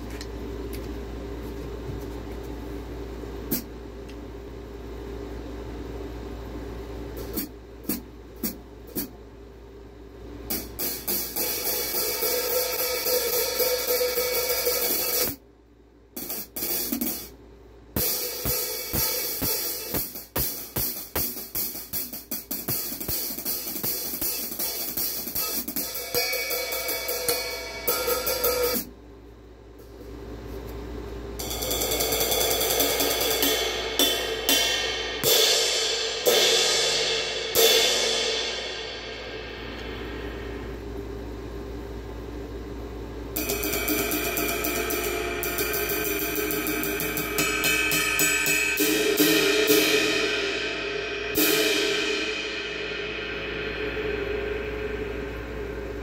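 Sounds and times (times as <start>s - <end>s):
low room hum: 0.0s - 56.0s
cymbals struck with drumsticks: 10.5s - 15.4s, 16.2s - 17.4s, 18.0s - 28.9s, 31.4s - 40.7s, 43.4s - 56.0s.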